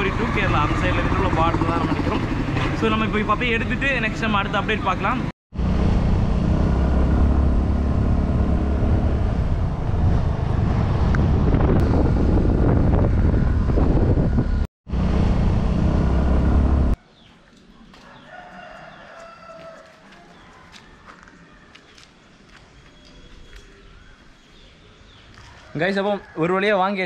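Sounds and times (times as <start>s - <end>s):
vehicle engine rumble: 0.0s - 17.0s
wind noise: 8.4s - 17.0s.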